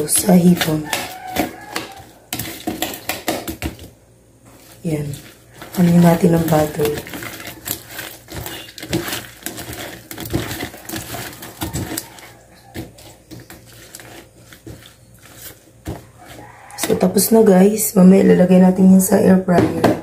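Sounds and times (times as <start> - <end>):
metal utensil scraping a dish: 0.0 - 3.3, 5.0 - 17.3.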